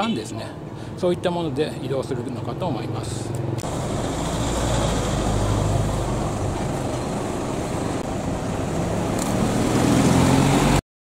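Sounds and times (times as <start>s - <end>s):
road noise: 0.0s - 10.8s
vehicle engine running: 2.2s - 10.4s.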